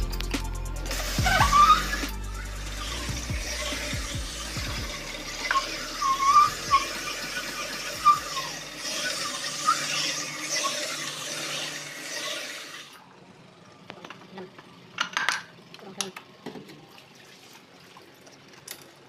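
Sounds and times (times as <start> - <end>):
low machine hum: 0.0 - 17.2
coolant hiss: 0.8 - 13.0
honing stones squealing: 0.9 - 12.9.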